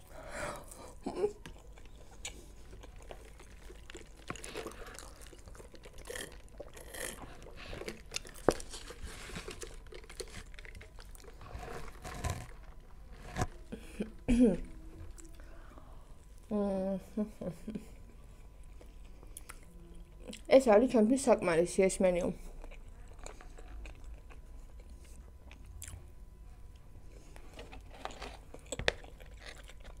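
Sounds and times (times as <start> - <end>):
chewing fries: 0.0 - 14.0, 18.0 - 20.6, 22.4 - 30.0
paper cup and packaging rustling: 7.2 - 13.6, 27.4 - 30.0.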